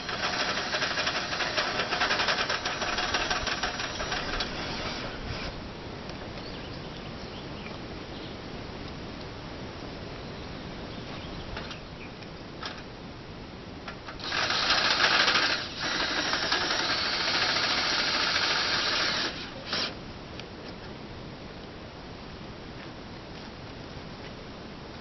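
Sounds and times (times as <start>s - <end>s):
handheld power tool running: 0.0s - 5.5s, 14.1s - 19.9s.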